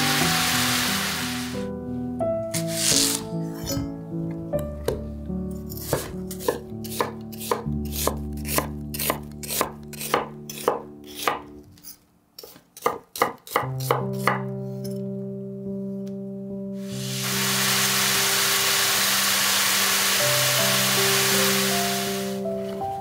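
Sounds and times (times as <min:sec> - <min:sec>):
soft background music: 0:00.0 - 0:11.8, 0:13.5 - 0:23.0
knife slicing onion on wooden board: 0:02.6 - 0:03.8, 0:05.7 - 0:14.5.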